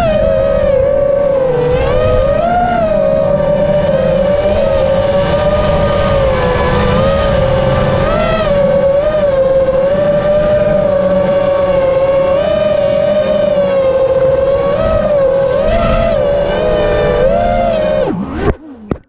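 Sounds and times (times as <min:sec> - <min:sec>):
drone propellers whining: 0:00.0 - 0:19.0
rushing air: 0:00.4 - 0:18.6.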